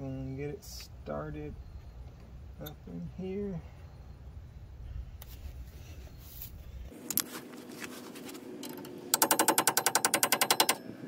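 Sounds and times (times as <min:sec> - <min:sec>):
ringing metal-on-metal taps: 0:08.7 - 0:10.9.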